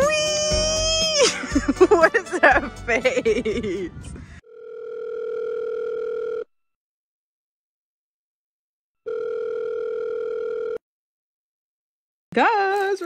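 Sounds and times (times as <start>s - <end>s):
outgoing call ringing tone: 4.4s - 6.5s, 9.1s - 10.8s.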